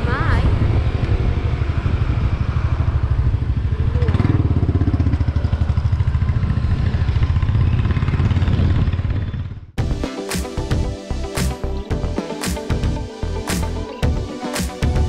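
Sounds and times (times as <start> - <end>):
motorcycle engine rumbling: 0.0 - 9.8.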